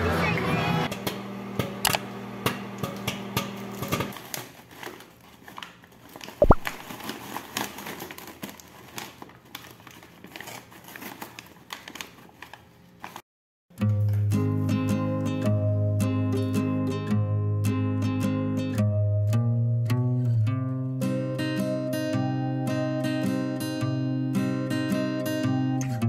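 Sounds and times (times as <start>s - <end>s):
microwave oven humming: 0.0s - 4.2s
paper bag crinkling and rustling: 4.1s - 13.2s.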